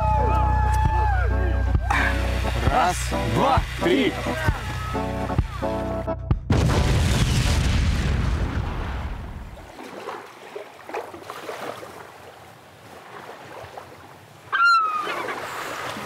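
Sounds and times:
water noise: 0.0 - 6.0, 6.7 - 16.0
explosion low rumble: 6.4 - 9.6.

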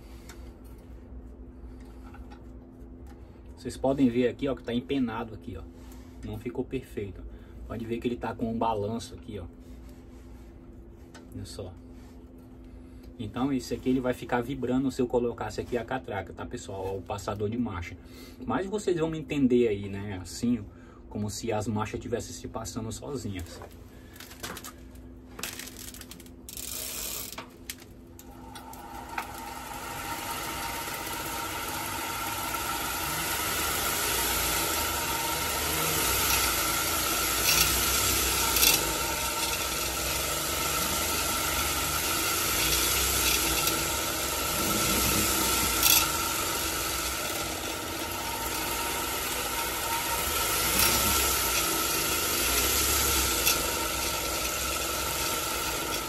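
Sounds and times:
pulley assembly whirring and rattling: 23.7 - 56.0.

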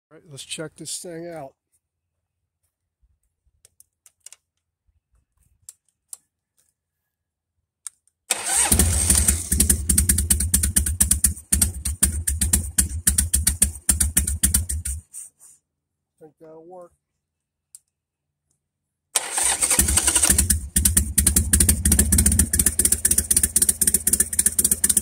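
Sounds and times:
motorcycle starter cranking: 8.3 - 15.0, 19.2 - 25.0
motorcycle engine running: 8.6 - 15.0, 19.6 - 25.0.

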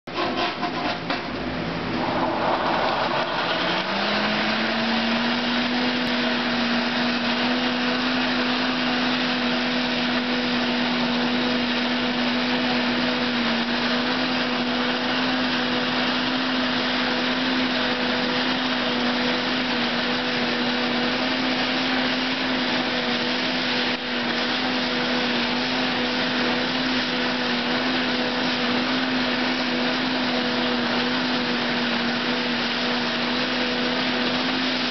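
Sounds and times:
forge blower whirring: 0.1 - 34.9
rush of air: 1.5 - 7.4.

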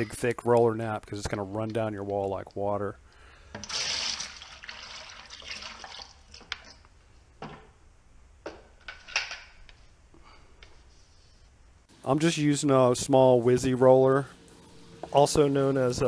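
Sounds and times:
liquid pouring into plastic bucket: 3.6 - 6.8.

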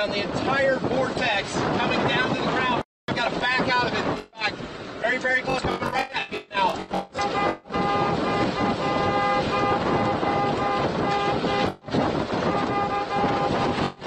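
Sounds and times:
wind rushing: 0.0 - 14.0
vehicle noise: 3.1 - 14.0
car horn honking: 3.8 - 4.5, 5.5 - 11.8, 12.4 - 14.0.

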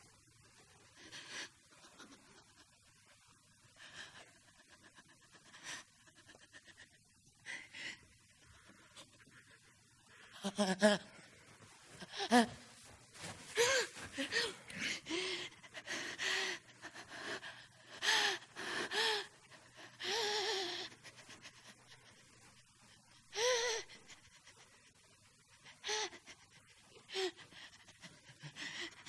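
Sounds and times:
woman laughing: 10.3 - 11.2, 12.0 - 12.7.

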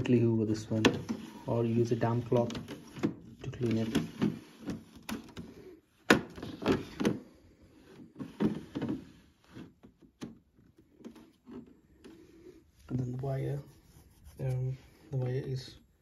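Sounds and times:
plastic filter clicking and scraping: 0.0 - 12.6.

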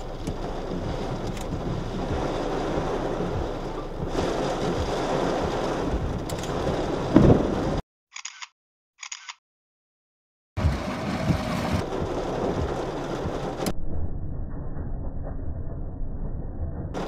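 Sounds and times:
rain: 0.0 - 7.8, 10.6 - 13.8
wind: 0.0 - 9.4
short clicks: 8.2 - 9.4
loud low burst: 10.6 - 17.0.

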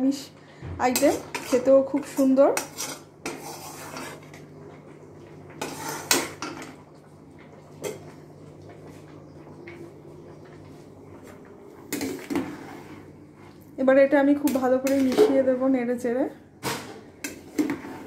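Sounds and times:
low steady hum: 0.0 - 17.8
metal utensil scraping a pan: 0.9 - 4.4, 5.6 - 6.7, 16.6 - 18.0.

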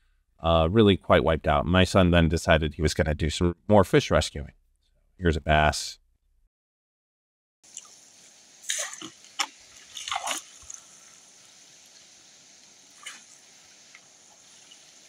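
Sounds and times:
faint steady hiss: 7.7 - 15.0
net splashing in water: 8.6 - 15.0.

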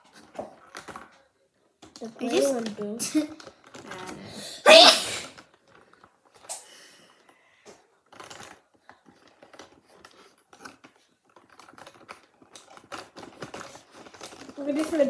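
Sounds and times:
markers rattling in plastic box: 1.8 - 4.3, 8.0 - 15.0.

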